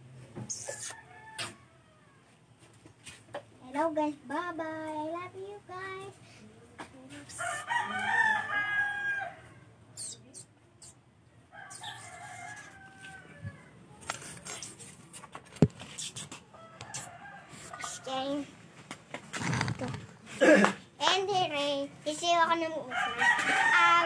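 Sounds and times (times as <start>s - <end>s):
rooster crowing: 7.4s - 9.7s, 11.5s - 13.8s, 22.9s - 24.0s.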